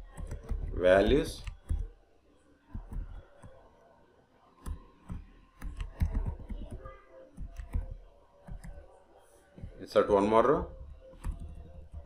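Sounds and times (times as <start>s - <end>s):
typing on computer keyboard: 0.0s - 1.9s, 2.7s - 3.6s, 4.6s - 8.9s, 10.7s - 12.0s.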